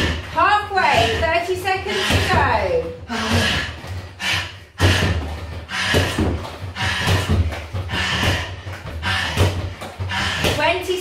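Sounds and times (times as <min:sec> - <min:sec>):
kicks thudding on punch bag: 0:04.8 - 0:10.7.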